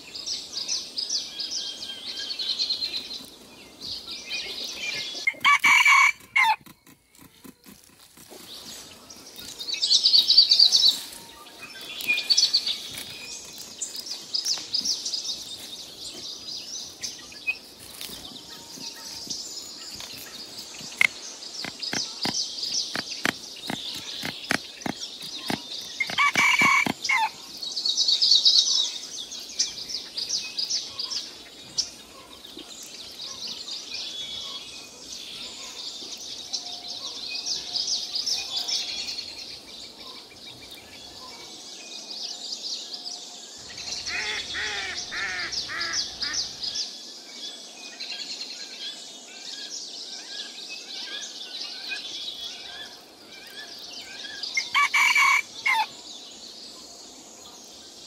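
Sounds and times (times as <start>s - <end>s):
birds chirping and twittering: 0.0s - 58.0s
chickens calling loudly: 4.5s - 6.7s, 22.9s - 27.4s, 43.6s - 46.8s, 54.6s - 55.9s.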